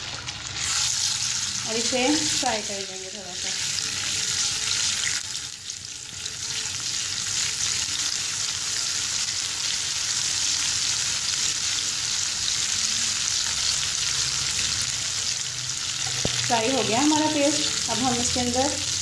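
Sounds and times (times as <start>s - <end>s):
paste sizzling in hot oil: 0.0s - 19.0s.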